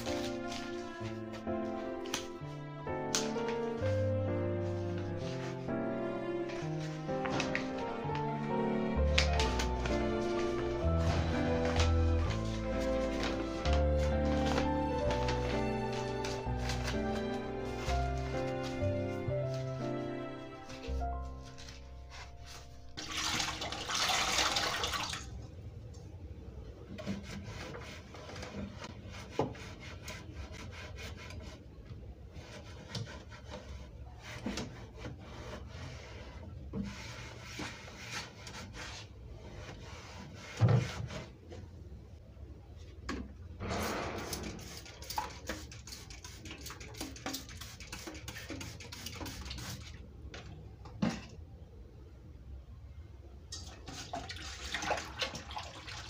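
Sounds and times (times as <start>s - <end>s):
paper rustling: 0.0s - 3.8s, 6.4s - 20.0s, 20.6s - 23.0s.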